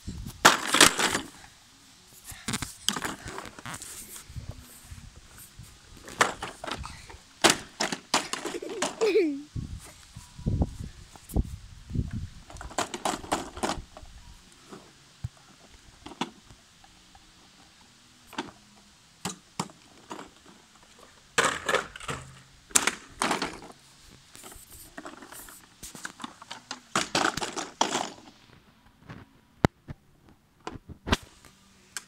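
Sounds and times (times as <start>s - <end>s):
rustling: 0.0s - 18.6s, 19.7s - 29.4s
plastic toy car clicks and knocks: 0.4s - 1.3s, 6.1s - 9.1s, 12.5s - 14.0s, 16.0s - 16.4s, 19.2s - 20.6s, 21.4s - 23.8s, 24.4s - 28.3s.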